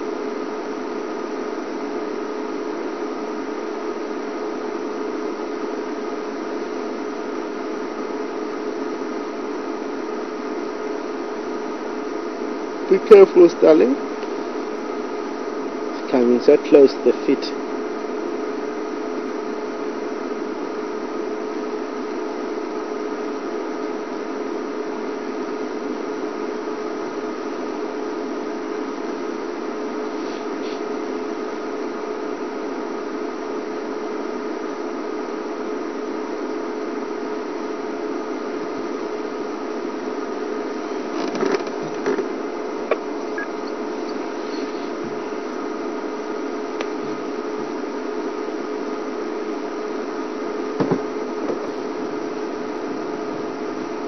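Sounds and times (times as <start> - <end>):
faint knocks: 50.8 - 51.6.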